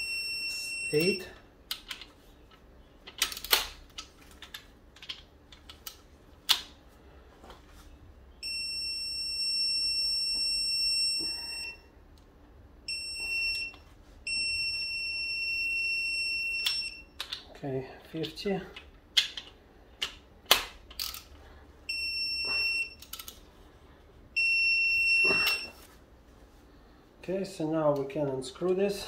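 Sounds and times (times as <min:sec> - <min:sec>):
torque tool beeping: 0:00.0 - 0:01.4, 0:08.4 - 0:11.9, 0:12.9 - 0:17.1, 0:21.9 - 0:23.1, 0:24.4 - 0:25.9.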